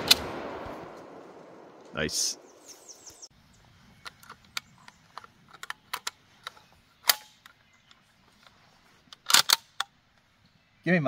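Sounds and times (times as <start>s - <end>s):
shotgun bolt clicking: 4.1s - 7.6s, 9.2s - 9.9s.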